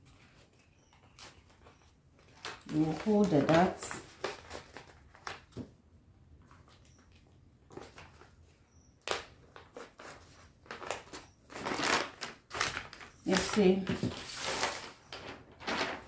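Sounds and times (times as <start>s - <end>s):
paper crinkling and crackling: 0.0s - 5.7s, 9.0s - 16.0s.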